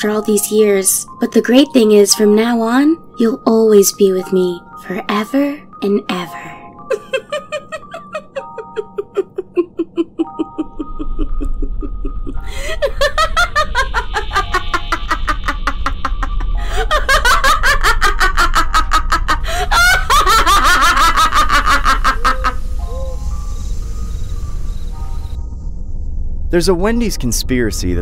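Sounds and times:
eerie music: 0:00.0 - 0:28.0
monster laughing sinisterly: 0:06.9 - 0:23.4
low rumble: 0:09.6 - 0:28.0.

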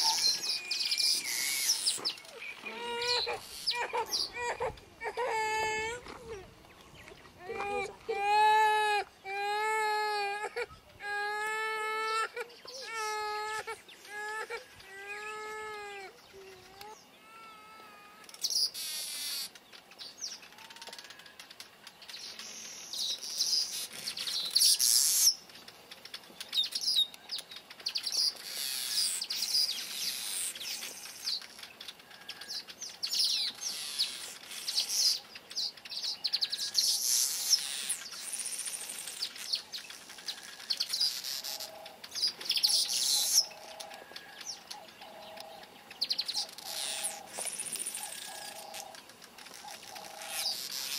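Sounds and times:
birds chattering: 0:00.0 - 0:04.9, 0:18.3 - 0:50.9.

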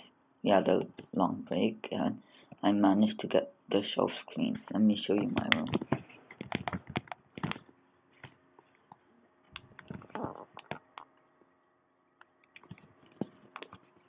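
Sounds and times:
device handling knocks and clicks: 0:05.3 - 0:07.6.

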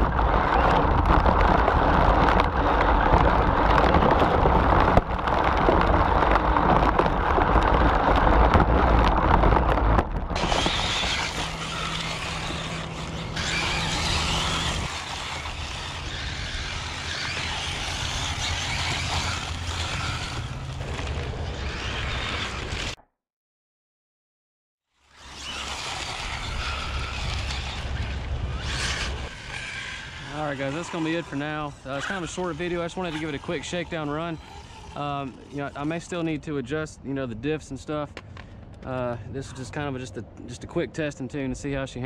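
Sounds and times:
rc car rumbling on gravel: 0:00.0 - 0:23.0, 0:25.0 - 0:36.5
tyres scrabbling on gravel: 0:00.0 - 0:23.0, 0:25.2 - 0:36.3.

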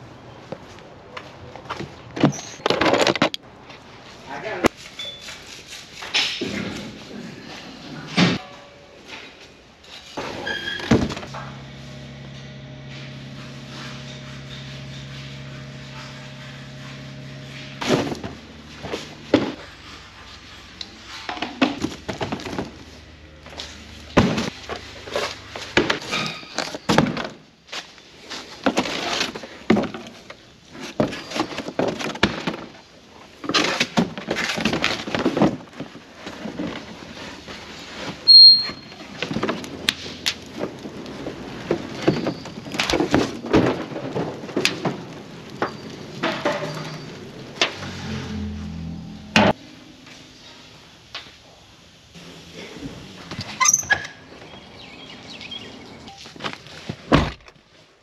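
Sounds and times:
steady hum: 0:45.1 - 0:53.6.

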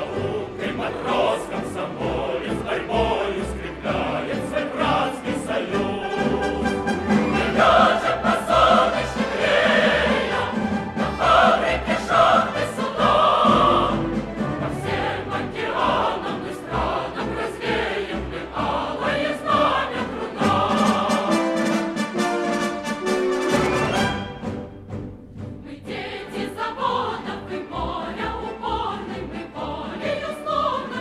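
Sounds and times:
choir singing: 0:00.0 - 0:24.6, 0:25.6 - 0:31.0
musical accompaniment: 0:00.0 - 0:31.0.

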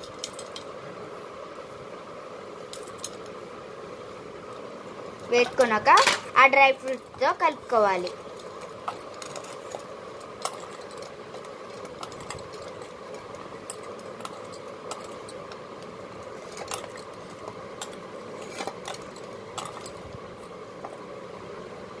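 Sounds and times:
steady background hum: 0:00.0 - 0:22.0
glass bangles clinking: 0:08.8 - 0:15.4, 0:17.8 - 0:20.1.

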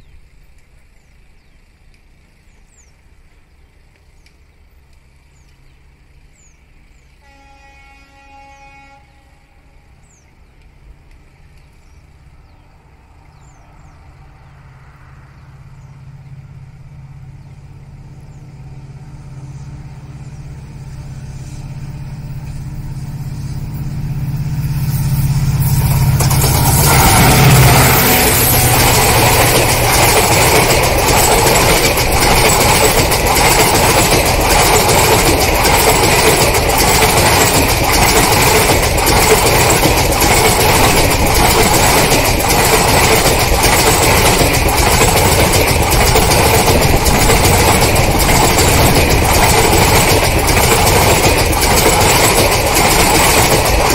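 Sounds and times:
train wheels on rails: 0:00.0 - 0:53.9
locomotive multi-tone horn: 0:07.2 - 0:10.0, 0:26.5 - 0:29.6
diesel engine drone: 0:09.4 - 0:53.9.

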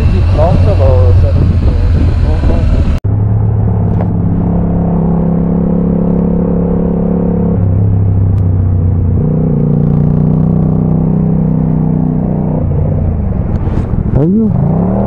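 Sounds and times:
motorcycle engine droning: 0:00.0 - 0:15.0.

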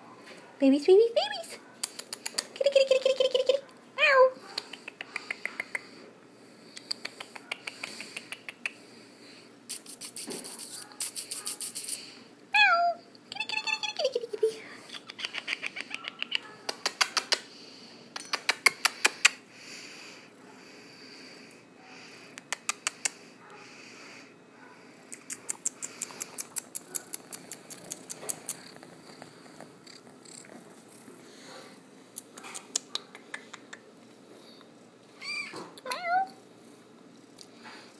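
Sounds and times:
kittens clicking: 0:01.8 - 0:02.6, 0:14.9 - 0:17.5, 0:25.1 - 0:29.3.

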